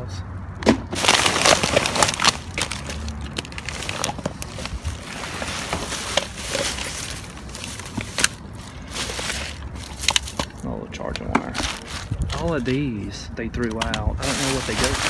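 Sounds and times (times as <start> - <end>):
plastic bags rustling and crinkling: 0.8 - 13.0, 13.8 - 15.0
cardboard box shifted: 0.9 - 10.5.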